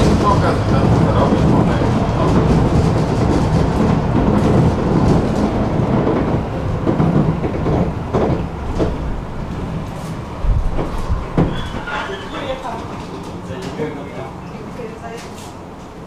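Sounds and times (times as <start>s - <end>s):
tram wheels rumbling on rails: 0.0s - 16.0s
knocks: 2.4s - 9.1s, 10.4s - 12.6s.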